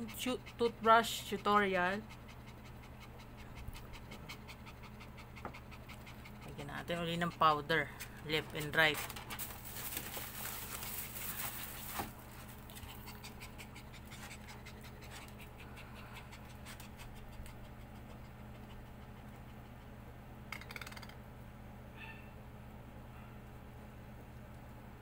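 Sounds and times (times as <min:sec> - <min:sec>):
puppy panting: 0:00.0 - 0:09.2, 0:10.2 - 0:20.2.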